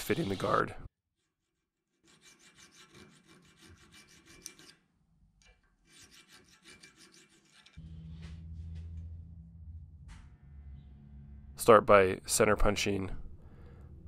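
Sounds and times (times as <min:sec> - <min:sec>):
hand file rasping on steel: 0:00.0 - 0:00.8, 0:01.5 - 0:04.9, 0:05.7 - 0:07.8
low steady hum: 0:07.8 - 0:14.0.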